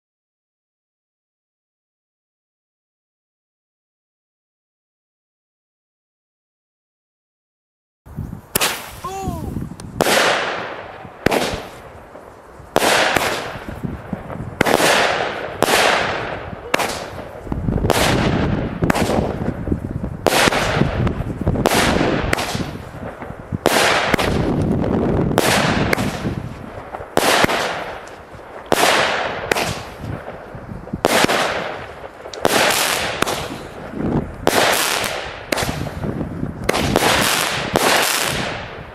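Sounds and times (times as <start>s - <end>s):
firework hiss: 8.4s - 38.4s
firework launches and bursts: 8.4s - 38.9s
firework cake reports: 8.6s - 12.2s, 12.8s - 22.6s.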